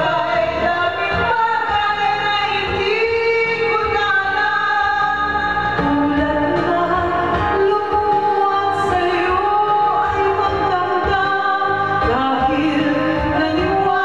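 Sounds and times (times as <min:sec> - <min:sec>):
karaoke backing track: 0:00.0 - 0:14.0
woman singing ballad: 0:00.0 - 0:14.0.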